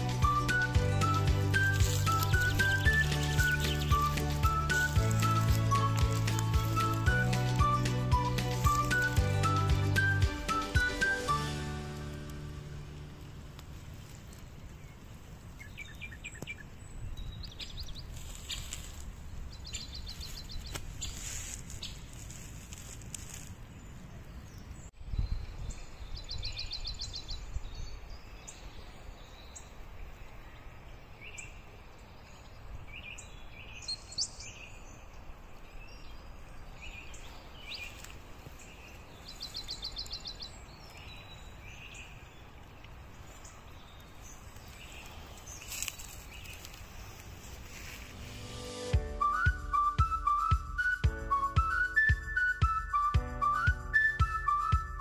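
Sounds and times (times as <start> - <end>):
songbirds chirping and trilling: 0.0 - 22.4, 23.2 - 49.4
steady low rumble: 12.0 - 15.5.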